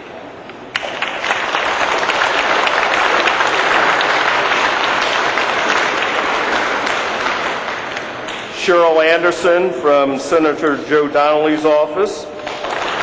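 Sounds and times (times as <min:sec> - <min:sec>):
audience applauding: 0:00.7 - 0:08.8, 0:12.4 - 0:13.0.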